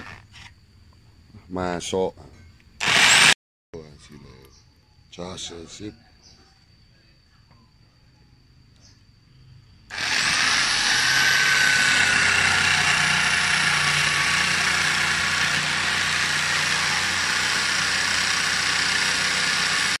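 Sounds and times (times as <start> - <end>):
electric jigsaw cutting wood: 2.8 - 3.4, 9.9 - 20.0.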